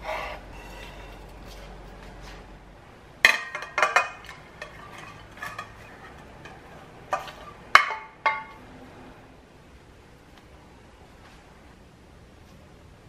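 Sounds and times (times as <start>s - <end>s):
spatula scraping plate: 0.0s - 1.8s, 3.5s - 7.7s
plate clinking on metal pot: 3.2s - 8.6s.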